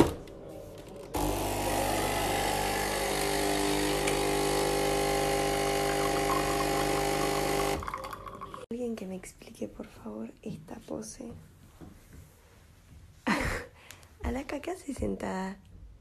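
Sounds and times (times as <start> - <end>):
espresso machine pump buzzing: 1.2 - 8.6.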